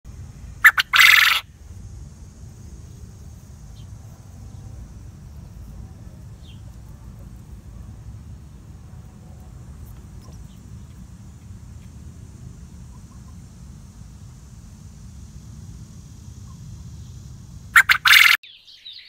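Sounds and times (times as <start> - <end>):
quail calling: 0.6 - 1.5, 17.8 - 18.9.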